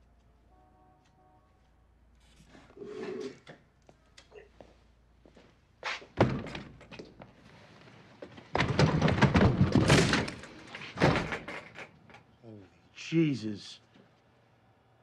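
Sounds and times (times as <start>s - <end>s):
door rattling: 8.5s - 12.0s.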